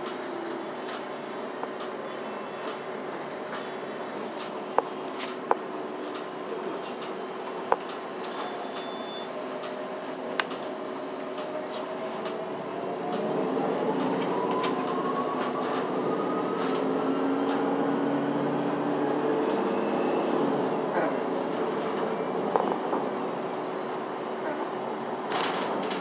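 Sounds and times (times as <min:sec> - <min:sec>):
bus engine droning: 0:00.0 - 0:26.0
rising drivetrain whine: 0:08.8 - 0:26.0.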